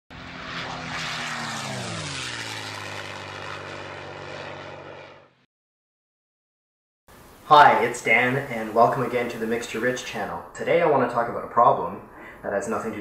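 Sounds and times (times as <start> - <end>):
propeller airplane passing by: 0.1 - 5.5.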